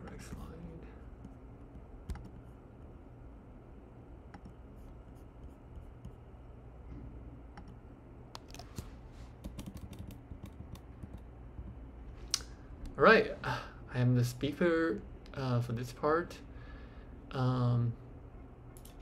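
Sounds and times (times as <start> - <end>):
low steady hum: 0.0 - 19.0
keyboard and mouse clicks: 2.0 - 2.5, 4.3 - 4.6, 8.4 - 8.8, 9.4 - 11.8.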